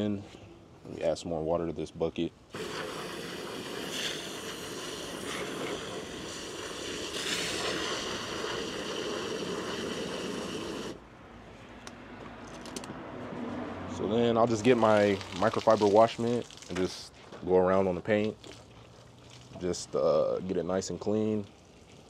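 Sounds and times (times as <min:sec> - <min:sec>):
water from hose into bucket: 0:02.5 - 0:11.0, 0:14.4 - 0:17.1, 0:18.0 - 0:22.0.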